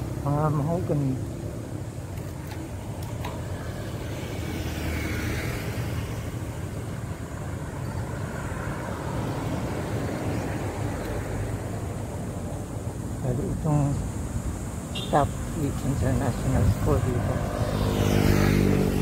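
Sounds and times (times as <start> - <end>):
traffic rumble: 0.0 - 19.0
vehicle passing: 3.4 - 19.0.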